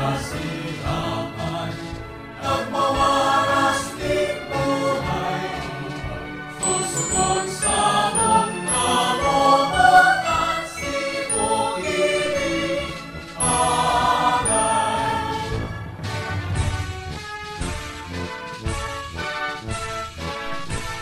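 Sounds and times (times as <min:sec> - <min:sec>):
voices singing: 0:00.0 - 0:15.8
musical accompaniment: 0:00.0 - 0:21.0.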